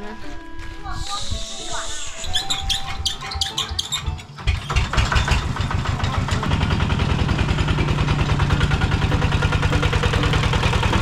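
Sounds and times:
vehicle engine throbbing: 0:03.7 - 0:11.0.

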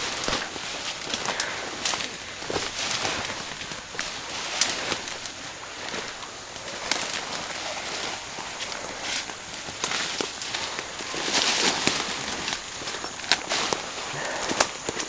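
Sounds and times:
leaves and branches rustling: 0:00.0 - 0:15.0
twigs crackling: 0:00.0 - 0:15.0.

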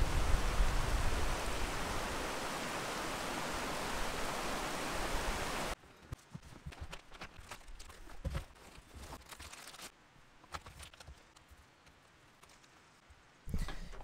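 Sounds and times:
creek rushing over rocks: 0:00.0 - 0:05.8.

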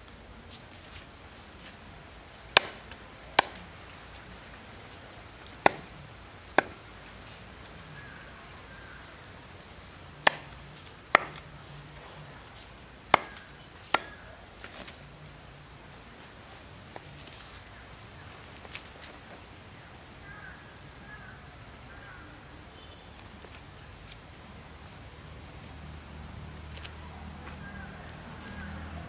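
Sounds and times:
knife chopping carcass: 0:02.6 - 0:03.6, 0:05.5 - 0:05.9, 0:06.6 - 0:06.8, 0:10.2 - 0:11.4, 0:13.1 - 0:14.2.

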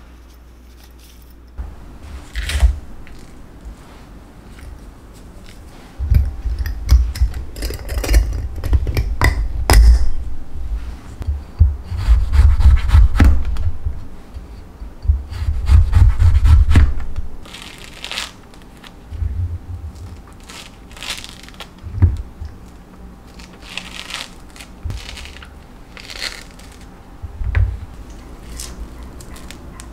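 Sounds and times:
knife slicing fruit: 0:02.1 - 0:03.4.

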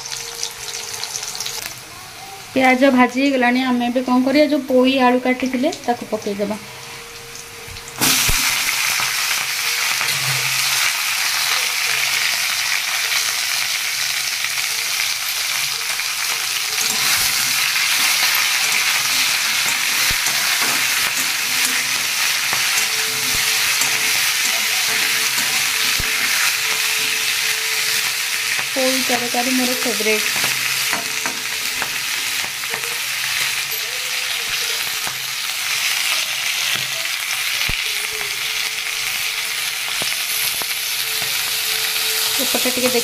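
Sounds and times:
vegetables sizzling in hot oil: 0:00.0 - 0:43.0
spatula knocking on pan: 0:30.2 - 0:32.9.

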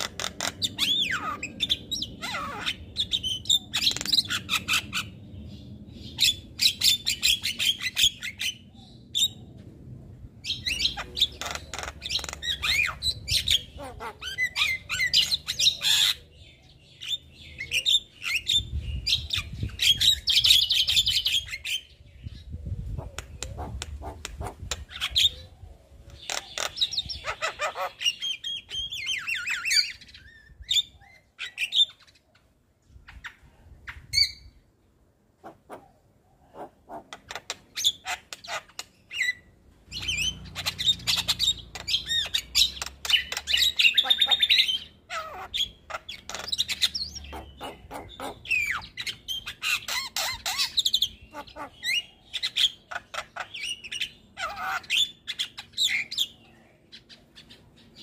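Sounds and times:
bird singing clicks and whistles: 0:41.2 - 0:44.0.

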